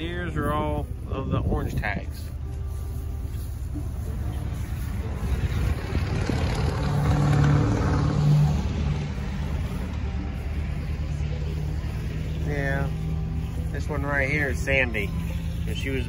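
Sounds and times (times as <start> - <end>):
engine running: 0.0 - 16.0.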